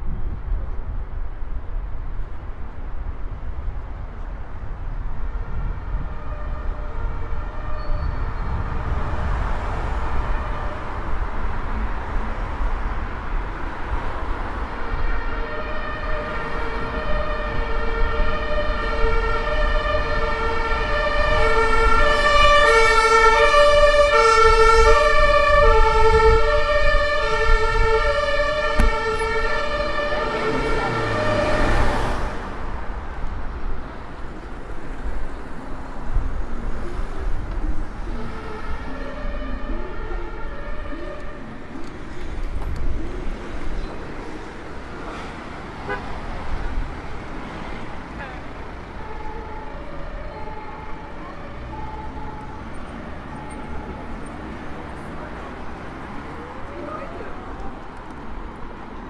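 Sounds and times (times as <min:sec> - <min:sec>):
city traffic rumble: 0:00.0 - 0:59.0
two-tone emergency siren: 0:05.2 - 0:11.3, 0:14.6 - 0:32.4, 0:36.9 - 0:41.9, 0:48.7 - 0:57.6.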